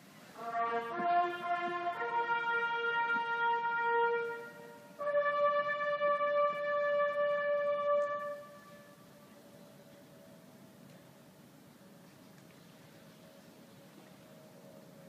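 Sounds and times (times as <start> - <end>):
bugle long notes: 0.4 - 9.4.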